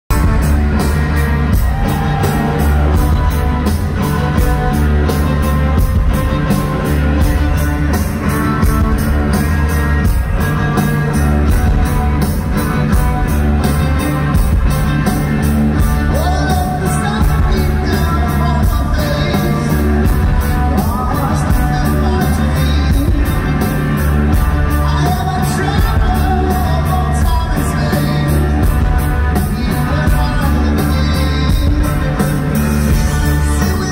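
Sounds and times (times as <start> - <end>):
live rock band: 0.1 - 33.9
steady drum beat: 0.1 - 33.9
lead singer singing: 16.0 - 23.8, 24.6 - 33.9.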